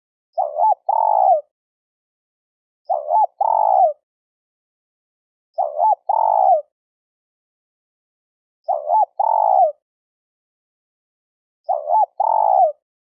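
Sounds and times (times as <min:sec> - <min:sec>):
dove cooing: 0:00.4 - 0:01.5, 0:02.9 - 0:04.0, 0:05.6 - 0:06.7, 0:08.7 - 0:09.8, 0:11.7 - 0:12.8.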